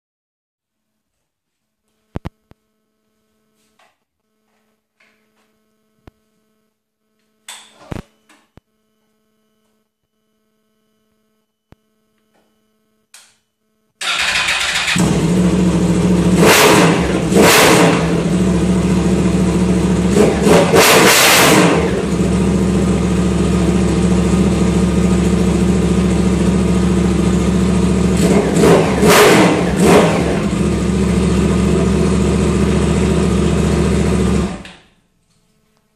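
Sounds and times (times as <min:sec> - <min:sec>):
motorcycle engine running and revving: 0:14.2 - 0:34.7.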